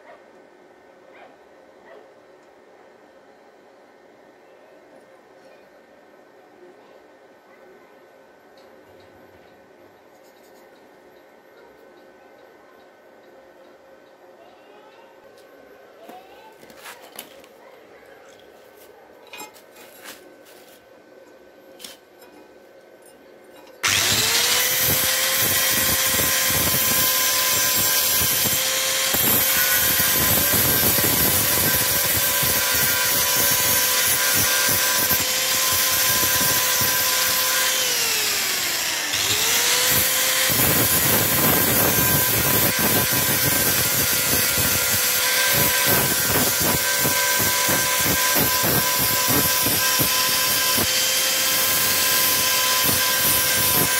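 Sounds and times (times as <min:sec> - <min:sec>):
angle grinder grinding steel: 0:23.8 - 0:53.9.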